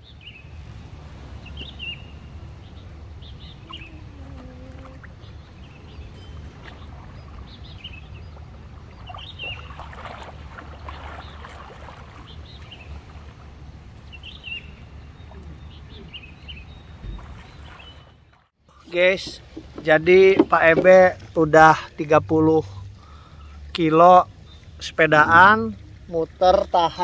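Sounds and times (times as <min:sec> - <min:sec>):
steady low rumble: 0:00.0 - 0:26.9
small birds chirping: 0:01.4 - 0:27.0
water splashing from swimmer: 0:06.4 - 0:14.1, 0:17.0 - 0:18.5.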